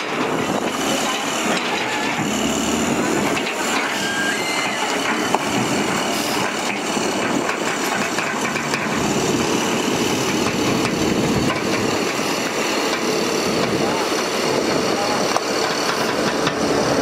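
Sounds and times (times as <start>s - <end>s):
heavy diesel engines running: 0.0s - 17.0s
metal knocks and clanks: 5.0s - 9.0s.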